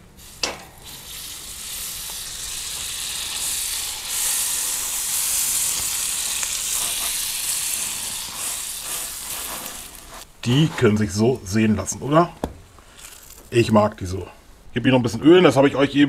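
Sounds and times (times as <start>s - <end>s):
fat sizzling on a griddle: 0.0s - 10.3s.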